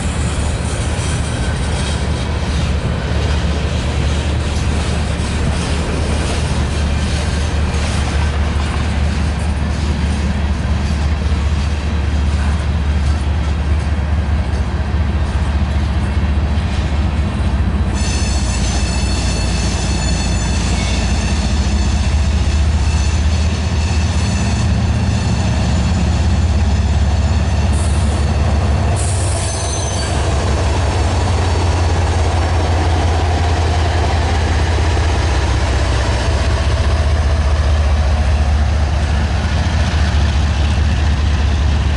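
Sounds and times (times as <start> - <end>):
diesel locomotive engine drone: 0.0 - 41.9
freight cars rolling on rails: 0.0 - 41.9
high wheel squeals: 18.0 - 30.8.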